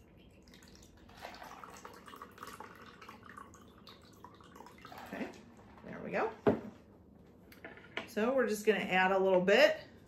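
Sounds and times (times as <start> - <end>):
water trickling and dripping into cup: 0.0 - 5.6.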